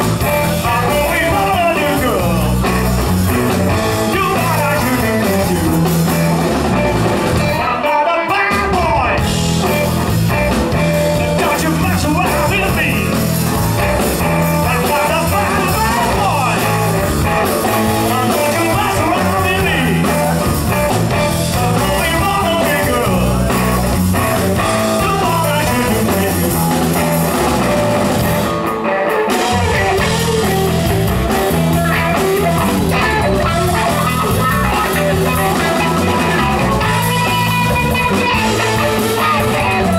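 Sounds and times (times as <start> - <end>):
bass guitar: 0.0 - 39.9
drum kit: 0.0 - 39.9
electric guitar: 0.0 - 39.9.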